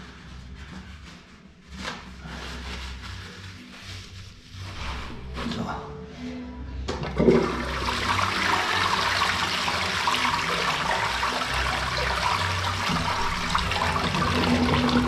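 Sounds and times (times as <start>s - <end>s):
toilet flushing: 6.9s - 15.0s.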